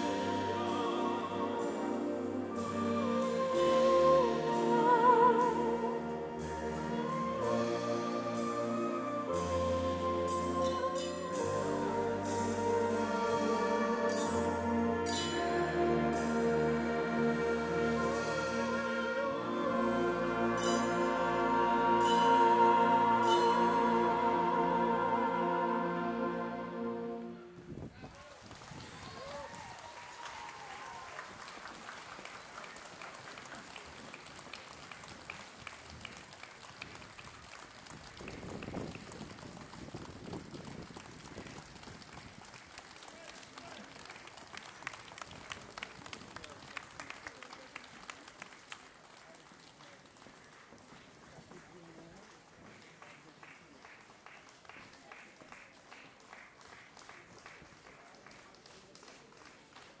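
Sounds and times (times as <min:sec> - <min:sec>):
audience applauding: 0:28.0 - 1:00.0.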